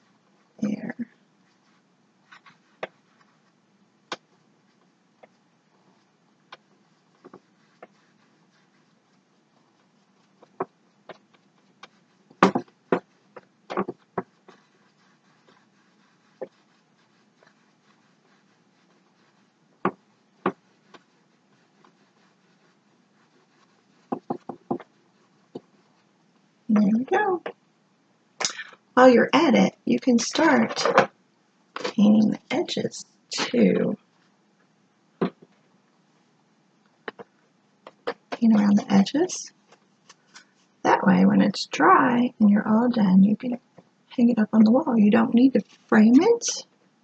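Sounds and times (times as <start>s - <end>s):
faint steady hiss: 0.0s - 47.0s
paintbrush tapping on canvas: 10.4s - 15.6s, 23.5s - 25.7s.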